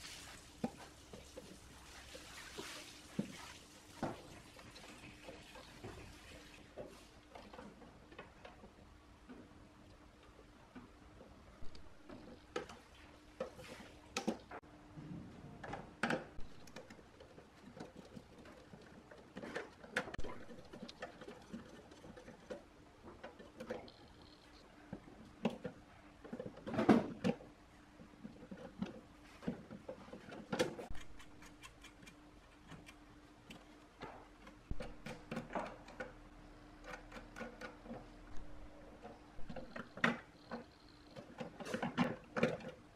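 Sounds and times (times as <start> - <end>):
faint steady hum: 0.0 - 42.9
fingers handling wires ticks: 16.4 - 24.7, 30.2 - 36.1.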